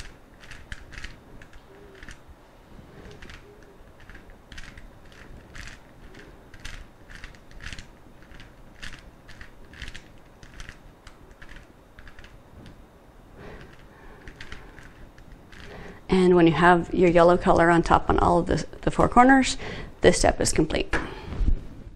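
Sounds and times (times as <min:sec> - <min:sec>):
speed cube clicking as twisted: 0:00.0 - 0:02.3, 0:02.9 - 0:12.8, 0:13.4 - 0:16.0.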